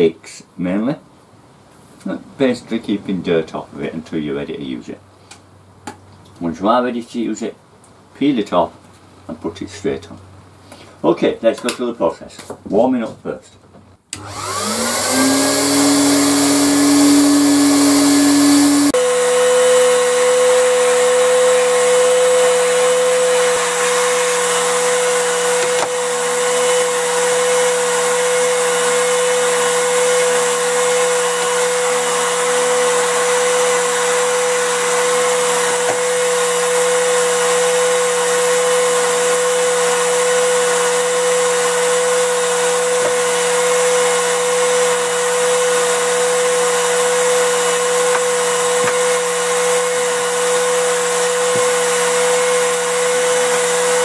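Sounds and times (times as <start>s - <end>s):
heat gun fan humming: 14.1s - 54.0s.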